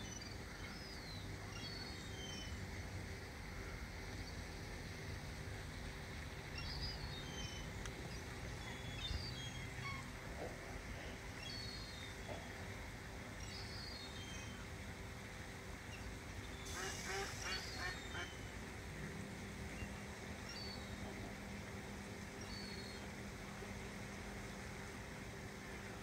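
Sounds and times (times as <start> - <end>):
birds giving high thin calls: 16.6 - 18.4.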